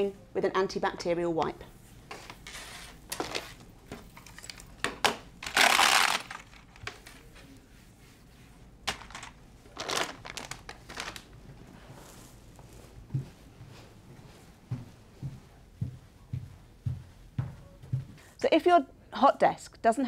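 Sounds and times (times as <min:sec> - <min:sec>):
plastic rustling: 0:02.1 - 0:07.6, 0:08.8 - 0:12.4
wipe rubbing across desktop: 0:07.6 - 0:08.7.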